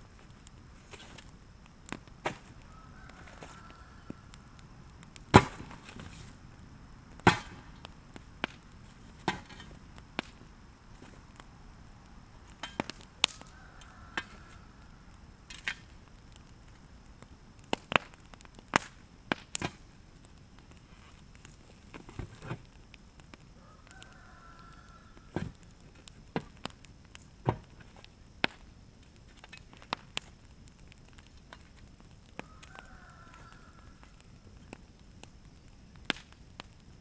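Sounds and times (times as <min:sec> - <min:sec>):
tool striking burning wood: 0:05.3 - 0:06.1, 0:07.2 - 0:08.6, 0:09.2 - 0:10.4, 0:12.5 - 0:13.4.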